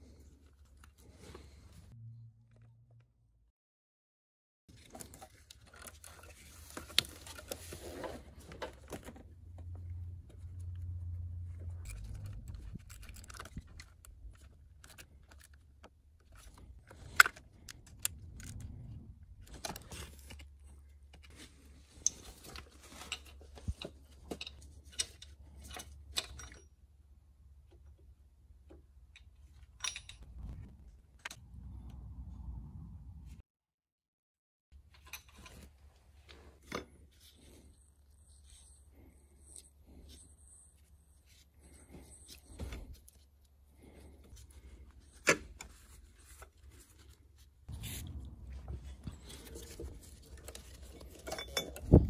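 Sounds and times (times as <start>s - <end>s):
metal tools clinking and scraping: 21.3s - 26.8s, 29.5s - 30.3s, 48.8s - 52.0s.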